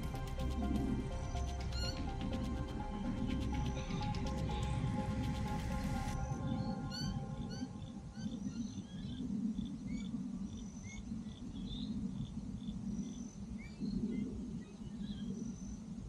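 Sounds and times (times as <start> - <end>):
low rumble: 0.0 - 10.5.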